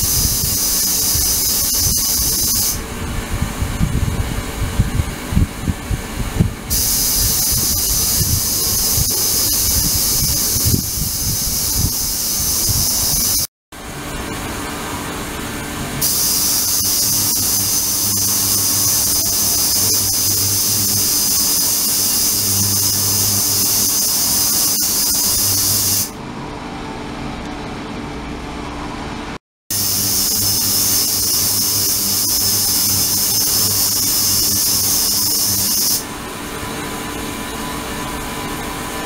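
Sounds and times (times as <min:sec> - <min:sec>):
ultrasonic cleaner hiss: 0:00.0 - 0:02.8, 0:06.7 - 0:13.5, 0:16.0 - 0:26.1, 0:29.7 - 0:36.1.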